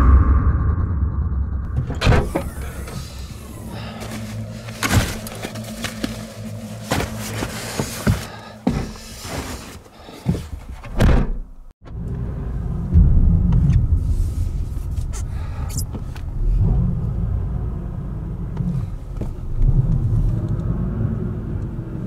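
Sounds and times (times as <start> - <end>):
car engine rumbling inside cabin: 1.4 - 9.6, 11.5 - 22.0
rustling and knocks of movement: 1.8 - 11.0.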